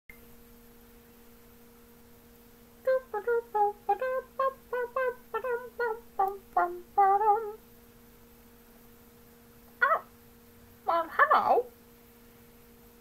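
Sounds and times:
faint electrical hum: 0:00.1 - 0:13.0
person singing wordless tune: 0:02.8 - 0:07.6.

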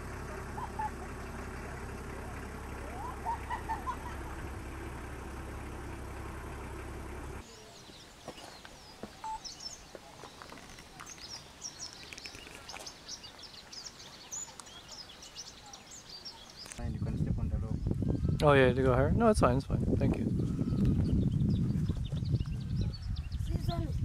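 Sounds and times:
steady low rumble: 0:00.0 - 0:07.4
small birds chirping: 0:00.0 - 0:16.9, 0:20.2 - 0:24.0.

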